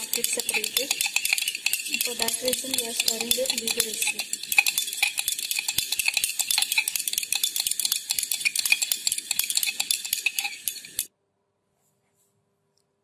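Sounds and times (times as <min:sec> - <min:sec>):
glass rod clinking in beaker: 0:00.0 - 0:11.1.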